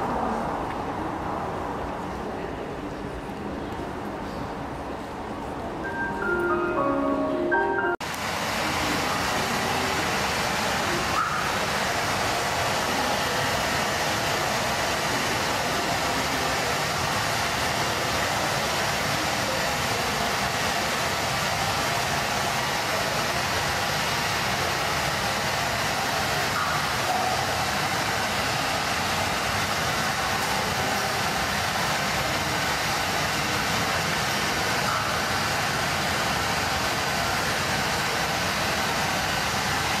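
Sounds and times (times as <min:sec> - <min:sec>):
chiming mallet music: 0:05.9 - 0:08.0
waterfall rushing: 0:05.9 - 0:40.0.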